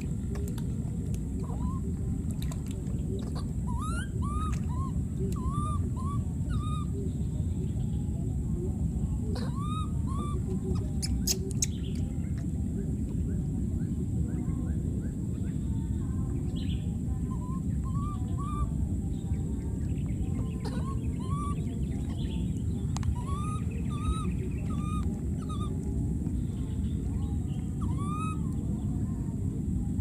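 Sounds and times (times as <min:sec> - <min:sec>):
steady low rumble: 0:00.0 - 0:30.0
baby monkeys calling: 0:01.4 - 0:01.9, 0:03.2 - 0:07.0, 0:09.3 - 0:12.0, 0:17.2 - 0:18.8, 0:20.4 - 0:25.9, 0:27.6 - 0:28.6.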